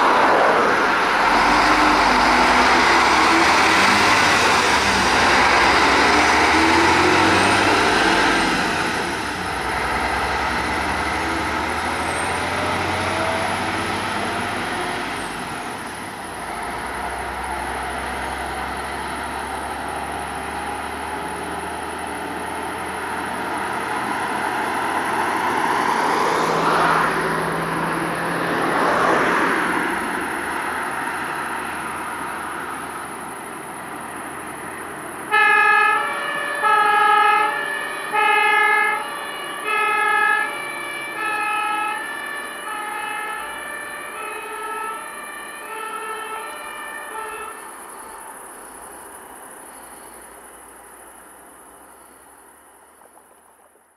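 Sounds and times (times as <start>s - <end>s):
cars passing: 0.0s - 52.2s
two-tone fire siren: 35.3s - 47.8s.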